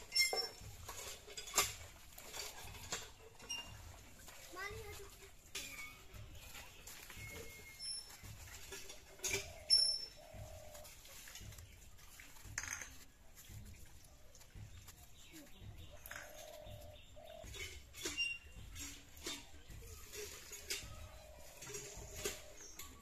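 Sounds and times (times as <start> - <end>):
small birds chirping: 0.0 - 23.0
hens clucking: 6.1 - 12.6, 13.2 - 23.0.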